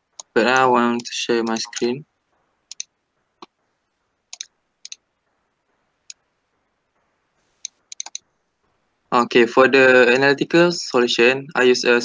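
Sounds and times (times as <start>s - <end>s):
computer mouse clicking: 1.5s - 1.9s, 2.7s - 3.6s, 4.3s - 5.0s, 7.6s - 8.3s.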